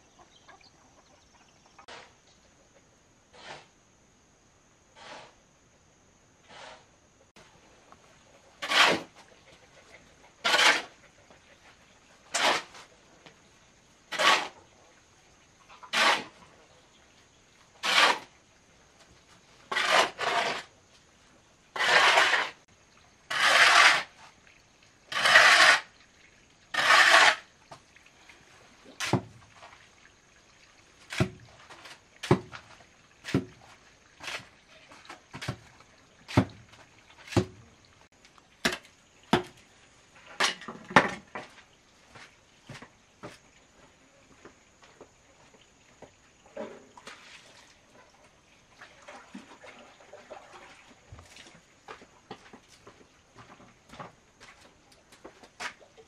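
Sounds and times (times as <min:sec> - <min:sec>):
hoe scraping sand and cement: 0:03.3 - 0:03.8, 0:05.0 - 0:05.4, 0:06.5 - 0:06.9, 0:08.6 - 0:09.2, 0:10.4 - 0:11.0, 0:12.3 - 0:12.9, 0:14.1 - 0:14.6, 0:15.8 - 0:16.4, 0:17.8 - 0:18.3, 0:19.6 - 0:20.8, 0:21.8 - 0:22.7, 0:23.3 - 0:24.3, 0:25.1 - 0:25.9, 0:26.7 - 0:27.5, 0:34.2 - 0:34.5.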